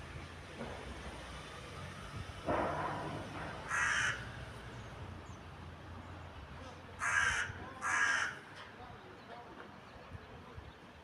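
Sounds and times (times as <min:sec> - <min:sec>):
crow cawing: 0:03.6 - 0:04.3, 0:07.0 - 0:08.4.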